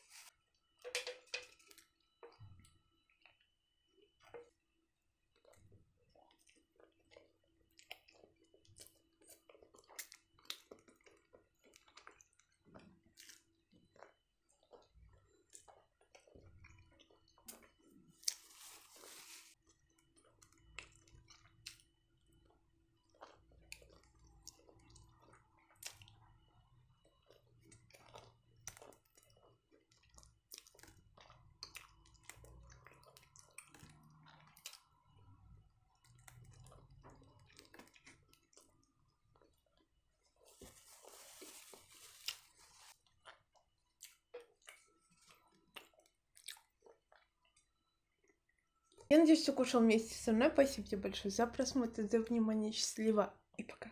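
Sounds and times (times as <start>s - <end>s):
chewing and mouth sounds: 5.3s - 18.7s, 19.6s - 49.1s.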